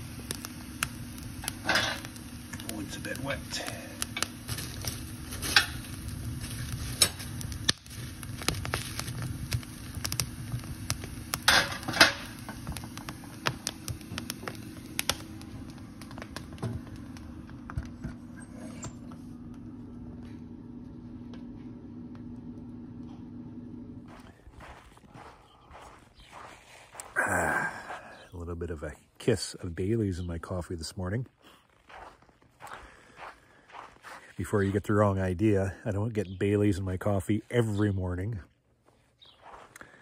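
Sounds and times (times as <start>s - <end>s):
low hum: 0.0s - 30.9s
logs crackling in wood stove: 0.0s - 40.0s.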